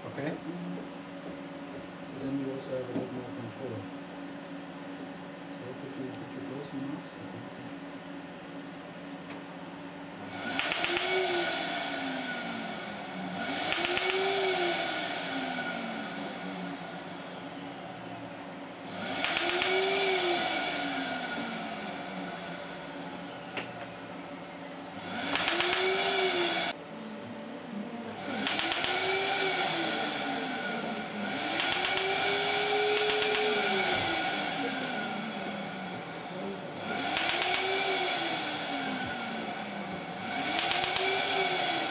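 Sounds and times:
laser hissing whirr: 10.2 - 26.8, 27.9 - 41.9.

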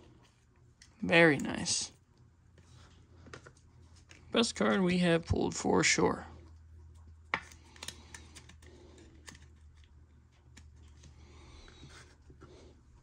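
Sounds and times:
trading cards handled and sleeved: 2.5 - 5.3, 6.8 - 13.0.

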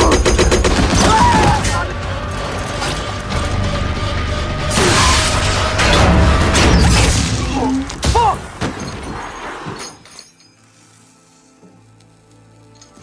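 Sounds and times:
gunfire and blasts: 0.0 - 1.8.

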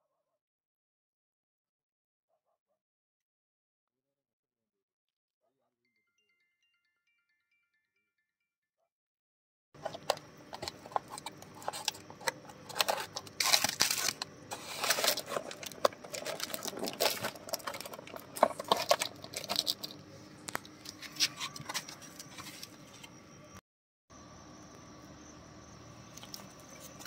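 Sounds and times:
paper tearing and crumpling: 10.6 - 20.0.

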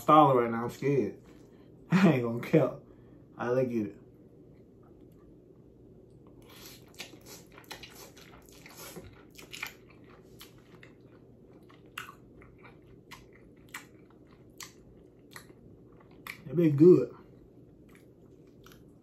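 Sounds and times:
wet chewing smacks: 6.3 - 16.5, 17.3 - 19.0.

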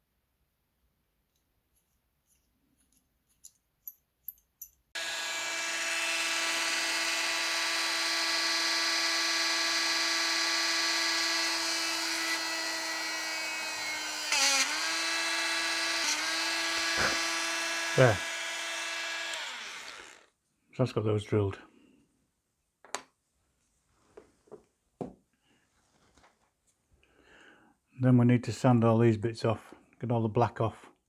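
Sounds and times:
mini drill whining: 5.0 - 20.4.

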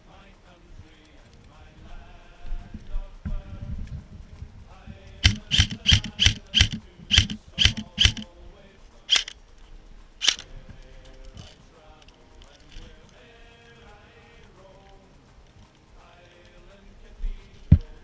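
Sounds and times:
airsoft rifle shots: 5.2 - 8.3, 9.1 - 9.4, 10.2 - 10.5.

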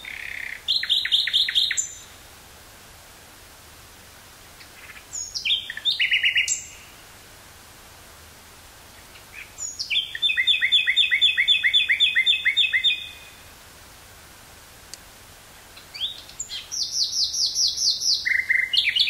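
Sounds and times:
nightingale singing: 0.0 - 2.2, 4.6 - 7.1, 8.9 - 13.6, 15.5 - 19.0
faint steady hiss: 0.0 - 19.0.

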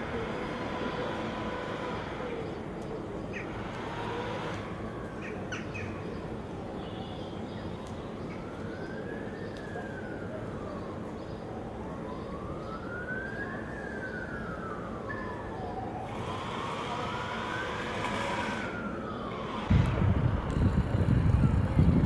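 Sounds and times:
siren wailing: 8.4 - 20.4.

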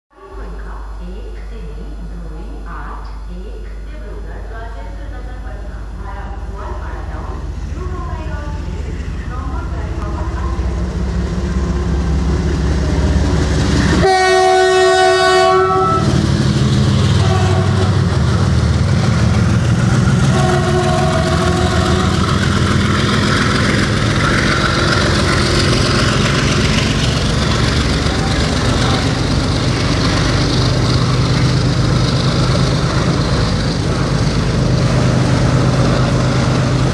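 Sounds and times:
diesel engine throbbing: 5.0 - 36.9
locomotive horn: 12.8 - 16.3, 16.9 - 18.1, 20.1 - 22.6
wheels clattering over rail joints: 17.8 - 36.9.

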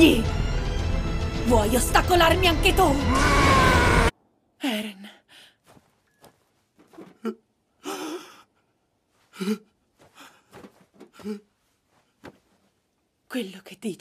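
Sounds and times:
person gasping and sighing: 7.1 - 11.5.

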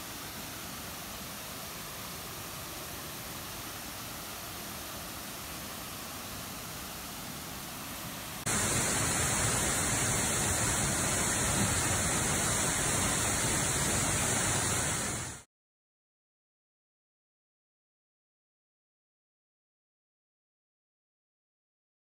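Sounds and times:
waterfall rushing: 0.0 - 15.4.

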